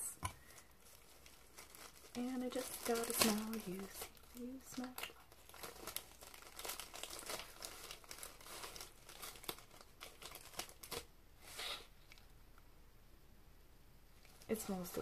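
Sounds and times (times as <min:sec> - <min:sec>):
plastic packaging crinkling: 0:00.3 - 0:11.1, 0:14.2 - 0:15.0.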